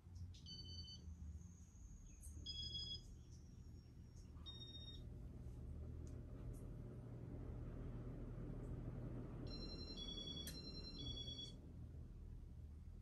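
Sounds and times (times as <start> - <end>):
faint low hum: 0.0 - 13.0
ceiling fan control two-tone beeps: 0.3 - 5.1, 9.4 - 11.6.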